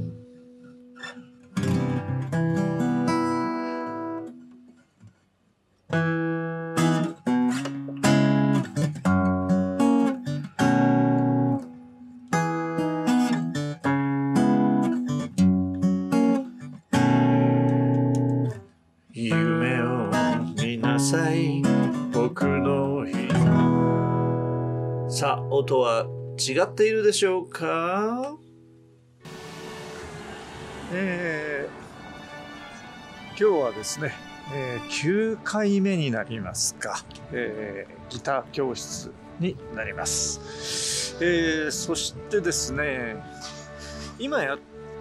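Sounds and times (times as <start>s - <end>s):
acoustic guitar strumming and picking: 0.0s - 5.0s, 5.9s - 26.6s, 28.5s - 36.3s.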